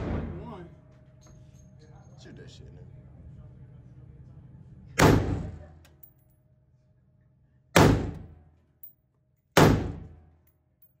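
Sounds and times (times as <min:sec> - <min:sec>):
gunshots echoing indoors: 0:00.0 - 0:00.5, 0:05.0 - 0:05.6, 0:07.7 - 0:08.5, 0:09.5 - 0:10.4.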